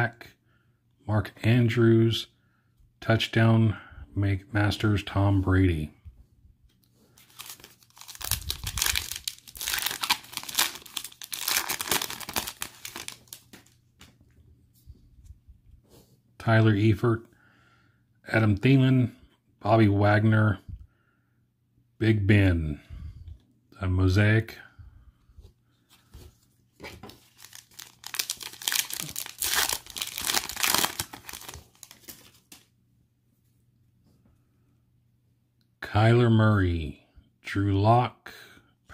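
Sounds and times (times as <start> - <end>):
foil wrapper tearing and crinkling: 7.2 - 13.8, 27.2 - 32.6.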